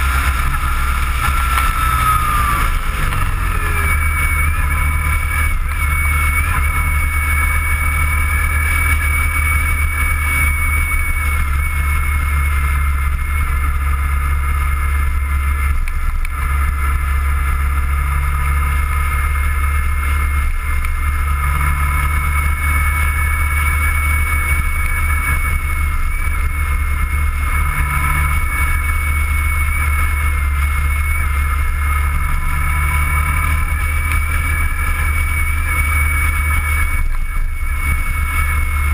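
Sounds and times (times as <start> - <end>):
motorcycle engine rumble: 0.0 - 38.9
thin steady whine: 0.0 - 38.9.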